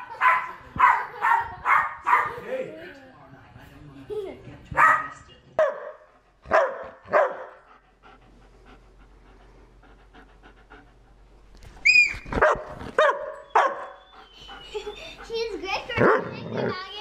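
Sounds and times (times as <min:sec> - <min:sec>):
dog barking: 0:00.1 - 0:02.4, 0:04.8 - 0:07.6, 0:12.4 - 0:14.0
dog panting: 0:06.1 - 0:11.5, 0:13.4 - 0:17.0
dog high squeal: 0:11.8 - 0:12.4.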